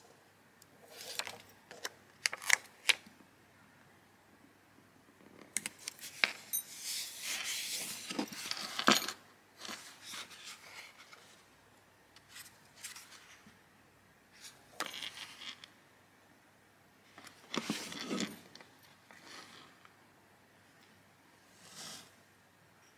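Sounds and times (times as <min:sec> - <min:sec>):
sketchbook pages rustling: 0:00.8 - 0:03.0, 0:05.8 - 0:08.8, 0:09.6 - 0:11.4.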